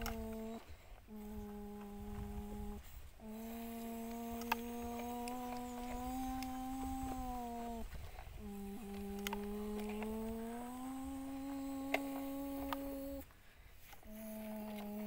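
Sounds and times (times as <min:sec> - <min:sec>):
person humming engine noise: 0:00.0 - 0:15.0
sharp click: 0:04.1 - 0:06.5.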